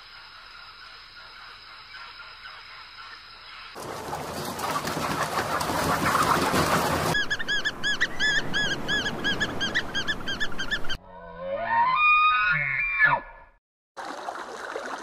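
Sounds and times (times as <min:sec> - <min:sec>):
birds whistling calls: 0:07.1 - 0:11.0.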